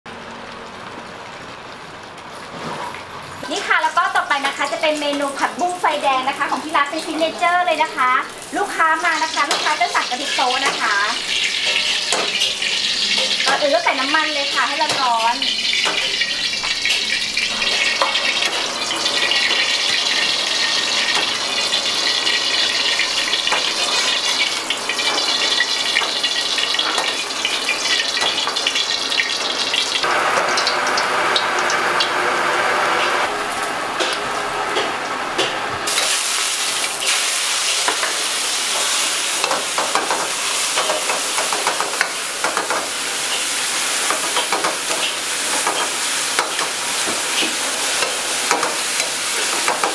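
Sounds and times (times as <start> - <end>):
oil sizzling in wok: 0.1 - 49.9.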